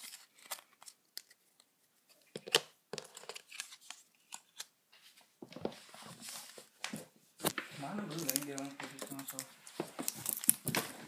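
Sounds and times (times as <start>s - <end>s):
foil wrapper crinkling: 8.0s - 10.8s.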